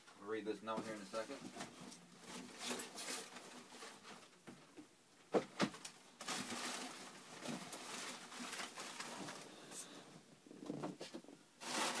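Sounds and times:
paper and cardboard rustling: 0.6 - 4.4, 5.6 - 10.0, 10.9 - 12.0.

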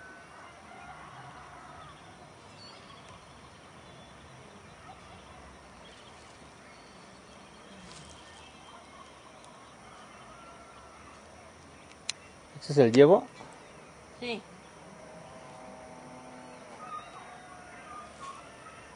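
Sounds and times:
steady hiss: 1.4 - 14.9
distant animal calls: 6.7 - 11.6, 13.3 - 18.9.

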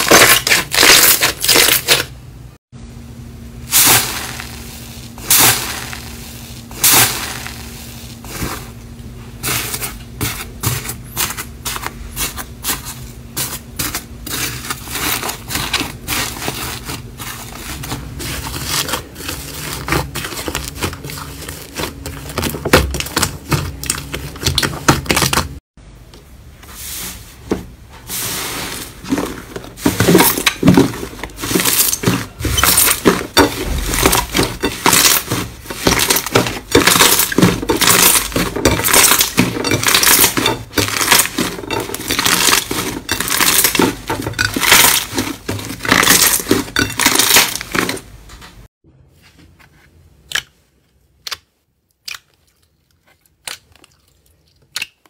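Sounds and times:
slime squelching and popping: 51.2 - 55.0.

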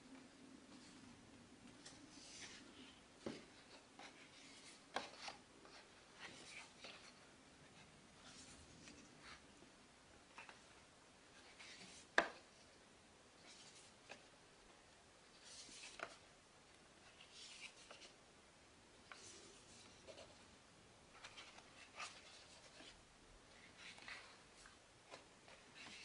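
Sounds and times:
paper pages rustling and turning: 1.6 - 7.3, 10.3 - 12.7, 13.4 - 14.3, 15.3 - 16.3, 17.0 - 18.2, 19.0 - 20.5, 21.1 - 26.0.

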